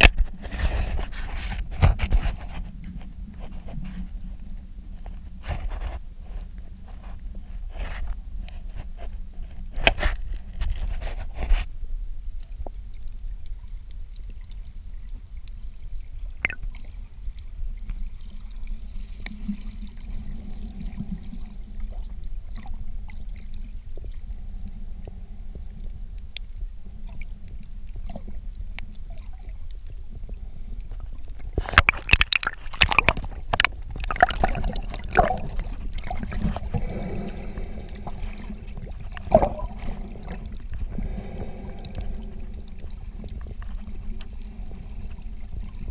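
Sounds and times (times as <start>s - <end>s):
underwater rumble: 0.0s - 45.9s
splashing and bubbling: 16.2s - 17.1s, 27.0s - 45.9s.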